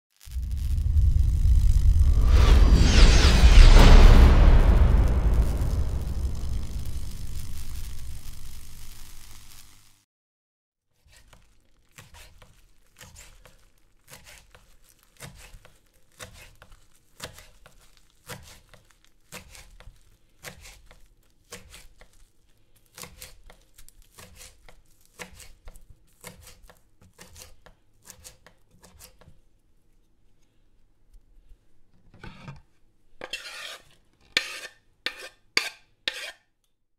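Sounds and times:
knife chopping on wooden board: 15.2s - 20.9s, 24.2s - 29.3s.

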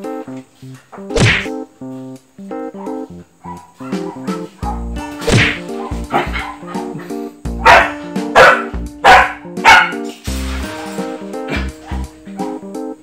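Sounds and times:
background music: 0.0s - 13.0s
puppy barking: 2.6s - 10.1s, 11.5s - 12.6s.

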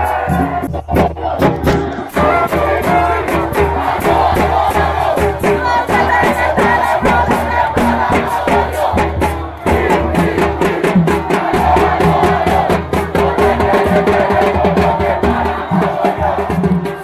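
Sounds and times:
crowd cheering and chanting: 0.0s - 17.0s
drums playing fast beat: 0.0s - 17.0s
horns sounding held notes: 1.8s - 4.3s.

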